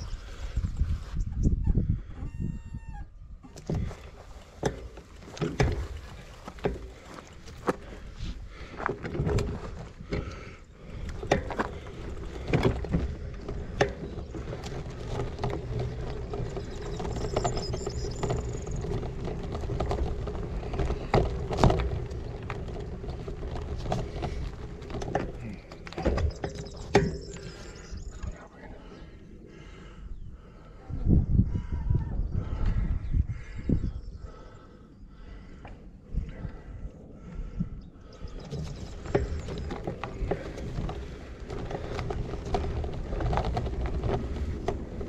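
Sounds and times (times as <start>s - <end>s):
rush of tyres and wind: 0.0s - 28.4s, 30.0s - 34.6s, 35.3s - 45.0s
bike knocks and rattles: 3.4s - 28.4s, 37.4s - 45.0s.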